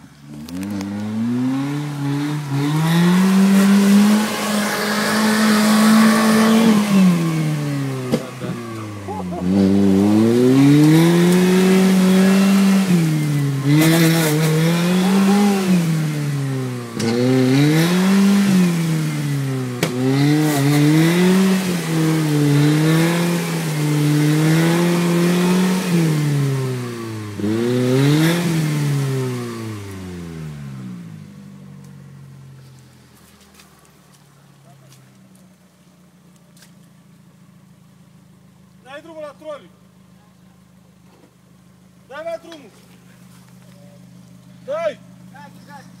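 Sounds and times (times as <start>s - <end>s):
engine revving hard: 0.4s - 31.1s
engine idling: 3.6s - 10.3s, 31.2s - 46.0s.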